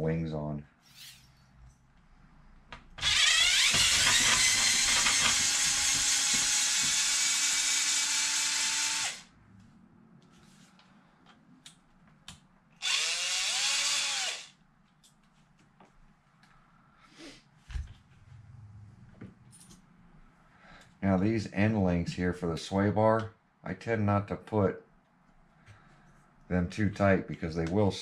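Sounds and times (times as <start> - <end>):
electric screwdriver motor whine: 3.0 - 9.3, 12.8 - 14.5.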